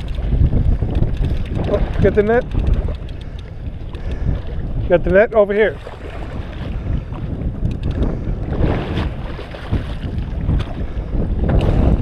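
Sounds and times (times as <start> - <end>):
water sloshing: 0.0 - 12.0
wind buffeting microphone: 0.0 - 12.0
light clicks: 0.9 - 4.2.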